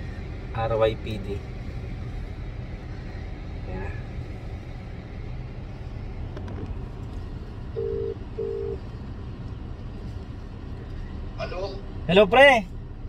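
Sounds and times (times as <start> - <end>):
car cabin rumble: 0.0 - 13.0
phone ringback tone: 7.8 - 8.8.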